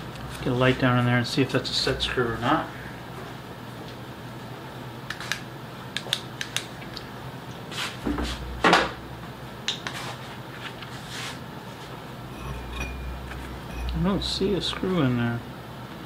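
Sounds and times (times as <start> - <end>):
small sharp clicks and taps: 6.0 - 7.1.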